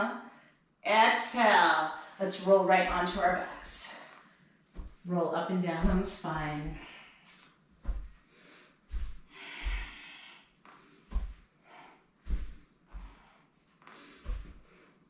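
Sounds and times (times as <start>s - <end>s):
dull thuds on a yoga mat: 2.8s - 3.8s, 4.7s - 7.0s, 7.8s - 10.0s, 10.8s - 11.5s, 12.2s - 13.3s, 14.1s - 14.8s
person breathing: 8.2s - 15.0s.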